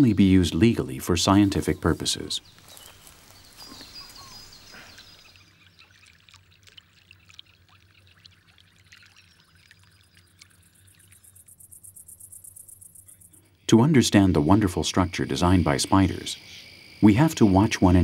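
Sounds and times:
soft hiss: 0.6 - 5.5.

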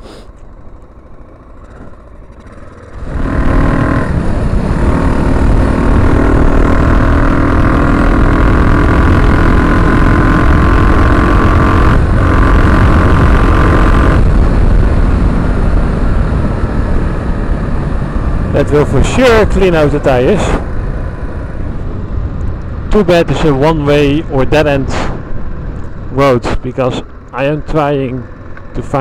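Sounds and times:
motorcycle engine pulling away: 0.1 - 20.1.

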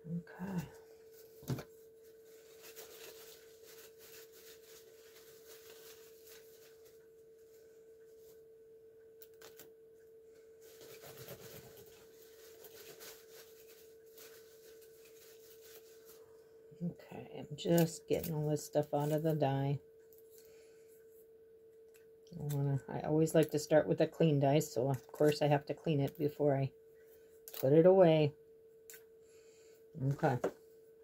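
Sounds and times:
faint steady hum: 0.0 - 31.0
paper pieces scratching and rustling: 10.7 - 16.2.

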